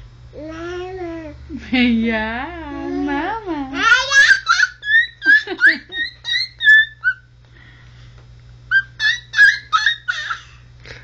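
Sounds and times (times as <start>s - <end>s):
baby babbling: 0.4s - 1.4s.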